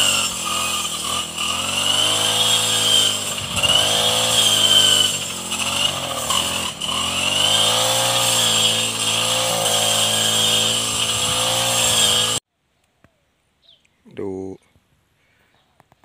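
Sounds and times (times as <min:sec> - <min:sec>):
brush cutter mowing grass: 0:00.0 - 0:12.4.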